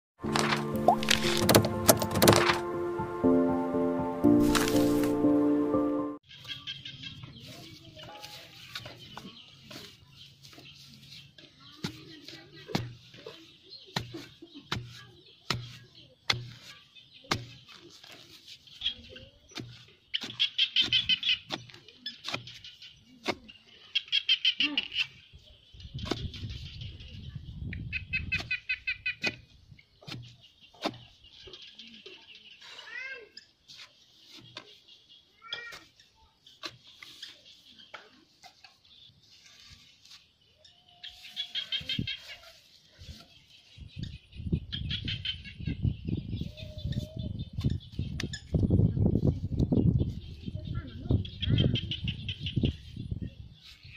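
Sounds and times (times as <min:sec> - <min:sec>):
birds chirping: 0:00.6 - 0:53.9
hands packing soil: 0:04.3 - 0:05.4, 0:07.4 - 0:23.9, 0:32.6 - 0:43.8
bamboo tube knocking soil: 0:11.8 - 0:13.3, 0:13.9 - 0:18.3, 0:19.5 - 0:23.5, 0:29.2 - 0:31.2.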